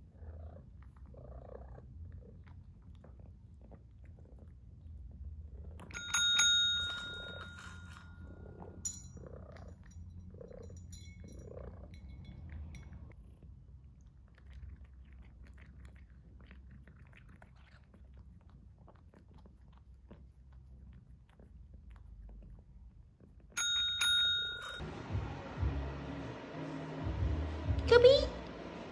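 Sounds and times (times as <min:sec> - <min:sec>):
cat eating from bowl: 0:05.7 - 0:24.9
service bell ringing: 0:05.8 - 0:09.2, 0:23.6 - 0:24.8.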